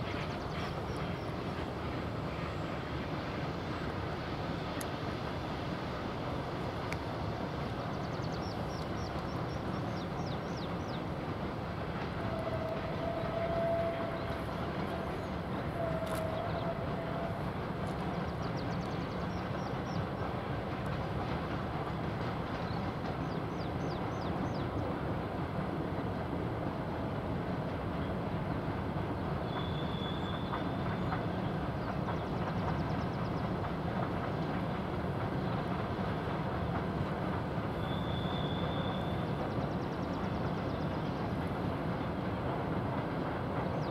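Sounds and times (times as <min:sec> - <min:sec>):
distant freight train running: 0:00.0 - 0:43.9
long steady horn tones: 0:12.2 - 0:15.1, 0:15.7 - 0:17.5.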